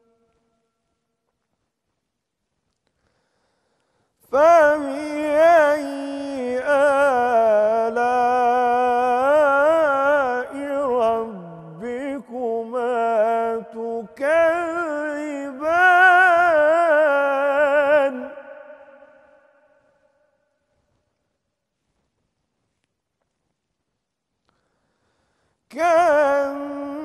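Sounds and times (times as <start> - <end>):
man chanting melodically: 4.4 - 19.1.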